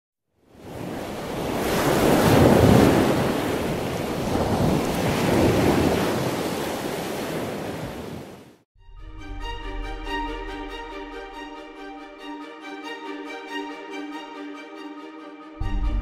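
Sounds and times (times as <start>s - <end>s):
ocean surf washing in: 0.5s - 8.6s.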